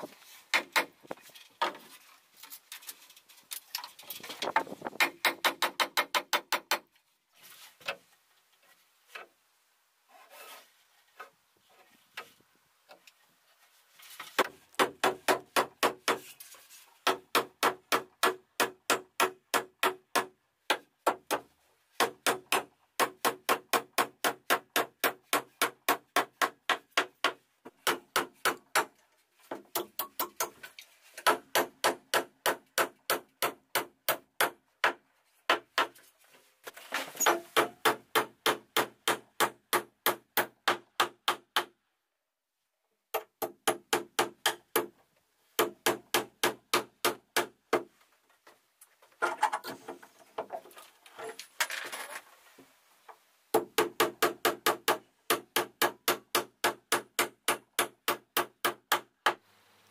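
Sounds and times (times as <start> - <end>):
hammer driving nails into wood: 0.5 - 1.0, 4.6 - 6.9, 14.4 - 16.3, 17.0 - 30.6, 31.2 - 36.0, 37.2 - 41.8, 43.1 - 44.9, 45.6 - 47.9, 53.6 - 59.4.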